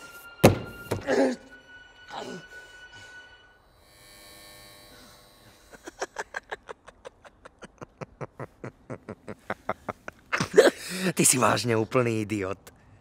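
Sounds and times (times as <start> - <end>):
faint electric buzz: 3.6 - 6.1.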